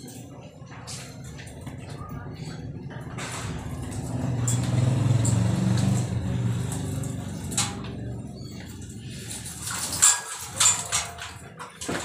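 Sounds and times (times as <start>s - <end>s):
passing vehicle engine rumble: 1.2s - 10.0s.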